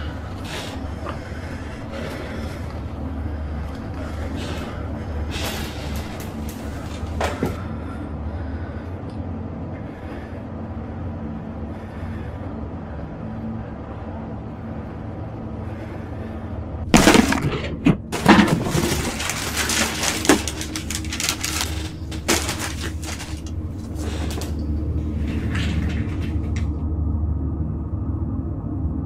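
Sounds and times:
low droning rumble: 0.0s - 29.0s
loud crashing and breaking: 16.9s - 23.5s.

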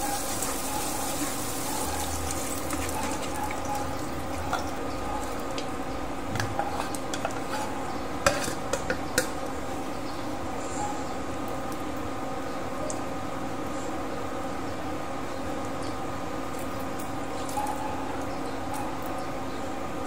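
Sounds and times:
frying sizzle: 0.0s - 10.6s
metal tongs scraping a pan: 6.4s - 9.3s.

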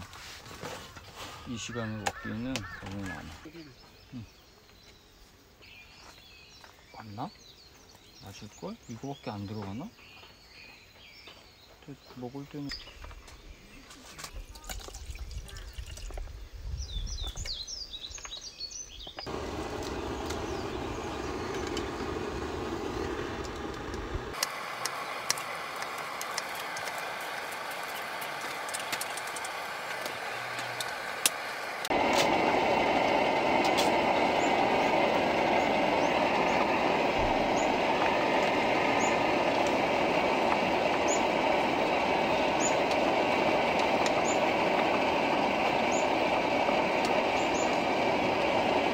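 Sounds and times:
birds chirping: 0.8s - 48.9s
gas stove burner rushing: 19.2s - 48.9s
low rumble: 19.3s - 24.4s.

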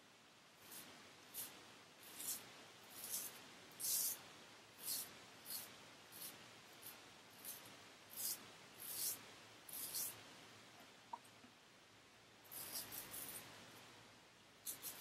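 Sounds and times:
straight razor scraping stubble: 0.6s - 4.2s, 4.8s - 10.2s, 12.5s - 13.5s, 14.6s - 15.0s.

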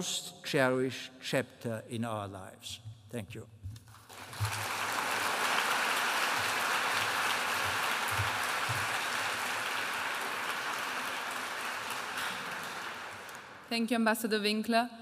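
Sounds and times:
audience applauding: 3.9s - 13.7s.

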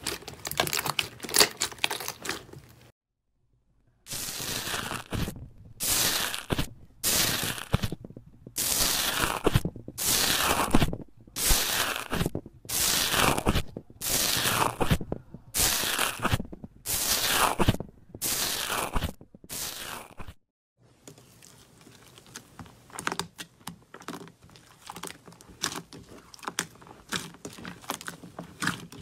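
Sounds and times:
foam slime crackling: 4.1s - 20.4s.

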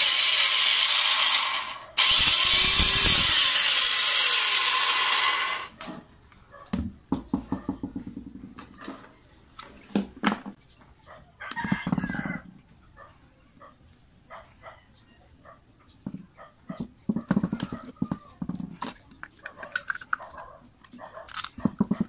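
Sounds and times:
electric planer motor running: 0.0s - 5.7s
rooster crowing: 11.4s - 12.5s.

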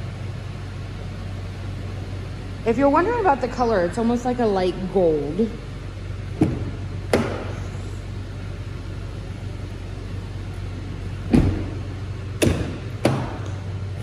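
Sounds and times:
steady low hum: 0.0s - 14.0s
car door thump: 6.3s - 7.6s, 11.2s - 13.6s
car door latch clunks: 11.2s - 13.6s.

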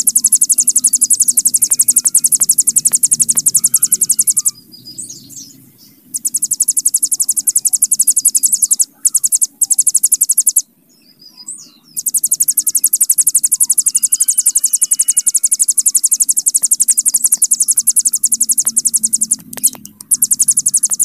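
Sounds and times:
bird buzzing trill: 0.0s - 4.6s, 6.2s - 10.6s, 12.0s - 21.0s
short high bird chirps: 6.1s - 10.6s, 11.3s - 21.0s.

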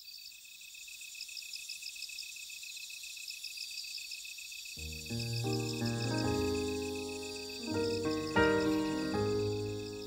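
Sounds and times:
crickets chirping: 0.0s - 10.0s
music: 4.8s - 10.0s.

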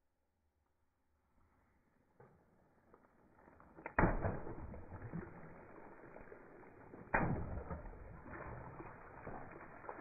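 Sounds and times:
water splashing on asphalt: 3.2s - 10.0s
water balloons popping: 3.7s - 6.2s, 6.9s - 10.0s.

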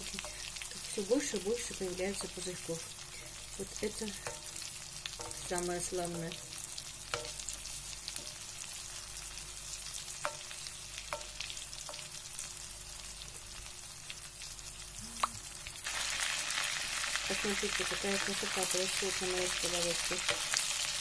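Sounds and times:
fish sizzling in butter: 0.0s - 21.0s
metal spoon clinking on pan: 4.2s - 5.5s, 7.1s - 7.4s.

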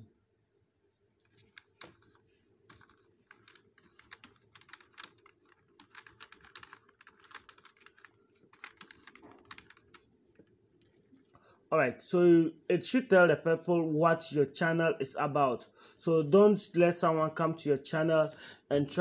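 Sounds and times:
keyboard typing clicks: 1.3s - 10.0s.

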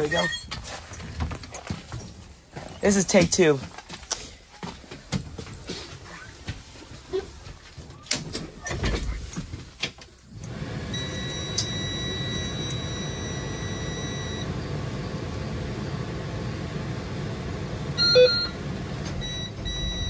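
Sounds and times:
short beep: 0.0s - 0.5s, 11.0s - 14.5s, 18.0s - 18.6s, 19.2s - 20.0s
low engine rumble: 10.4s - 20.0s
warning buzzer high tone: 11.0s - 14.4s, 18.0s - 18.6s, 19.2s - 20.0s.

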